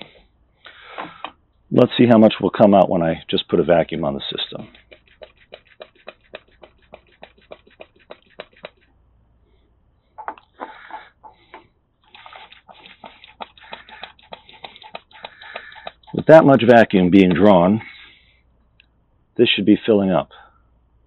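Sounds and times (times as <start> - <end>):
hissing sloshing fluid bursts: 4.4 - 8.9, 12.0 - 16.7
hand pump clicking: 4.6 - 8.8, 10.4 - 16.4.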